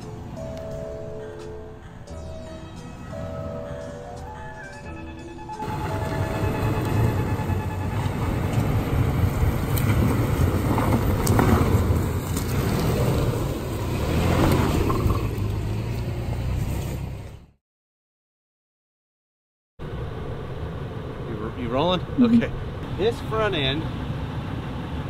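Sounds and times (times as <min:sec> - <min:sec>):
truck engine under load: 0:05.4 - 0:17.5
tyres crunching over gravel: 0:08.1 - 0:15.5.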